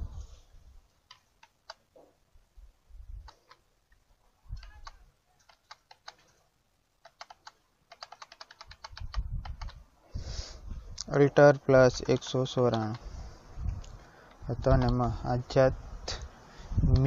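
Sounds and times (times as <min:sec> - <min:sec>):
computer keyboard key clicks: 0:04.6 - 0:06.2, 0:07.0 - 0:09.8, 0:14.3 - 0:15.0.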